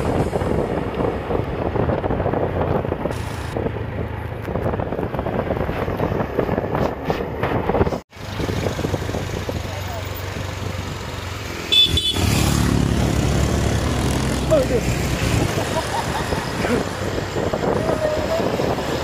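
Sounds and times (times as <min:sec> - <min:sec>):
wind on microphone: 0:00.0 - 0:09.8, 0:12.7 - 0:19.0
motor scooters running: 0:08.2 - 0:19.0.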